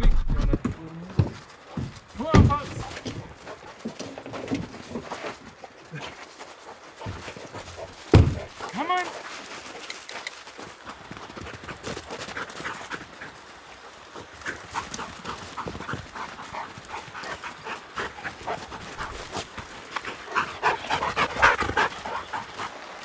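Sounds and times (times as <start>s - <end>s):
dogs panting hard: 1.2s - 23.0s.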